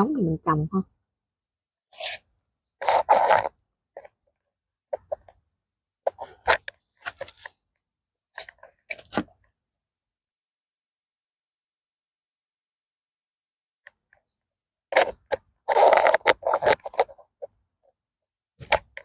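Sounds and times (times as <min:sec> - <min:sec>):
garden soil crunching and scraping: 0:02.8 - 0:03.5, 0:15.7 - 0:17.3.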